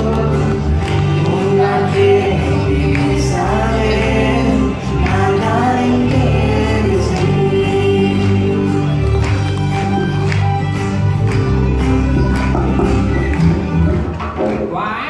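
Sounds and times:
person singing into a microphone: 0.0 - 9.0
sustained instrumental backing: 0.0 - 14.7.

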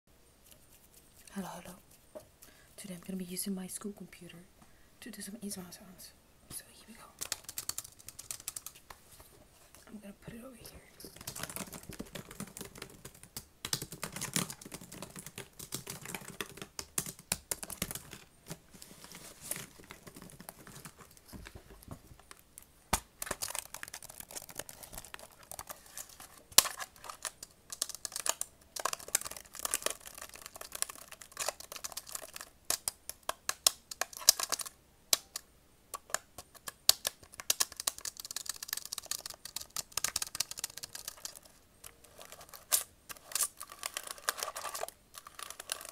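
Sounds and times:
laptop keyboard tapping: 7.2 - 8.9, 11.1 - 18.6, 19.6 - 45.9.

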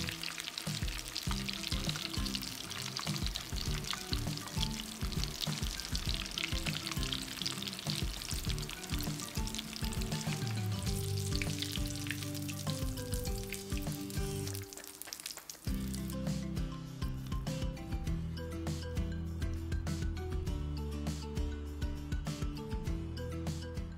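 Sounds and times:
oil sizzling in a pan: 0.0 - 16.4.

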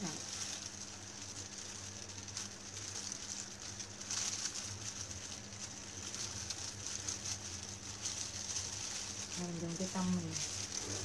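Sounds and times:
plastic gloves crinkling: 0.0 - 11.0.

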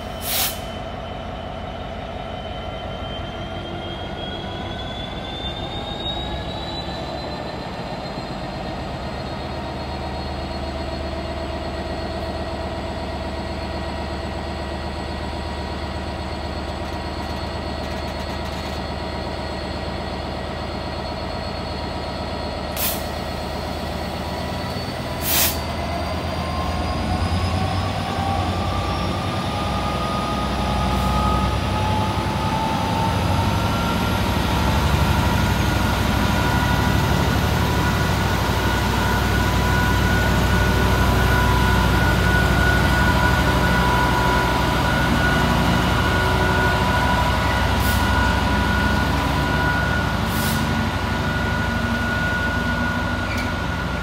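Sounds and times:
diesel locomotive engine rumble: 0.0 - 54.0.

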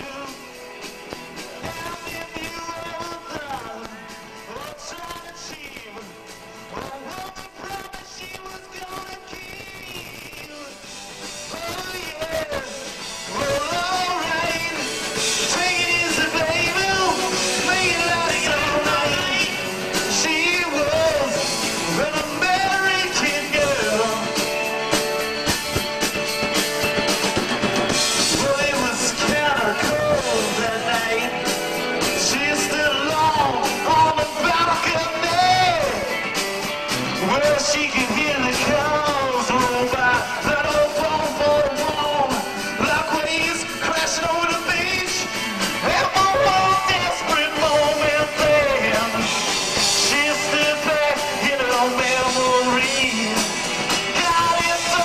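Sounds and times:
person singing: 0.0 - 0.7, 1.4 - 55.0
drums: 0.0 - 55.0
electric guitar: 0.0 - 55.0.

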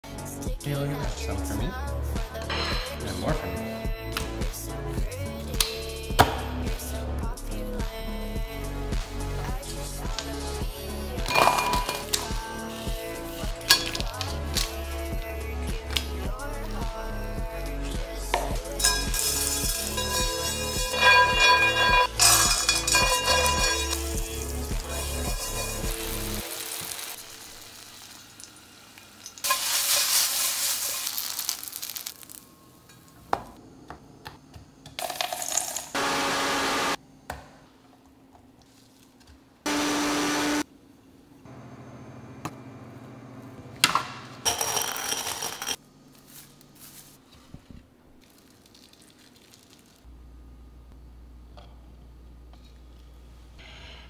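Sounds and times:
dishes and utensils clinking: 11.2 - 12.3, 13.6 - 14.2, 18.8 - 26.4, 44.4 - 45.8
nuts sizzling in frying pan: 18.8 - 32.5
blender running: 36.0 - 37.0, 39.7 - 40.6.

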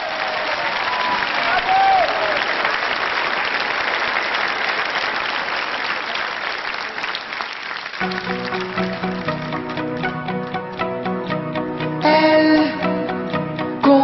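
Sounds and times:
audience applauding: 0.0 - 11.0
acoustic guitar playing: 8.0 - 14.0.

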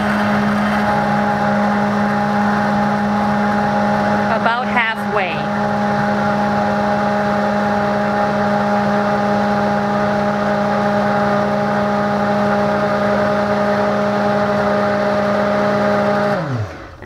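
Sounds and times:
immersion blender running: 0.0 - 17.0.

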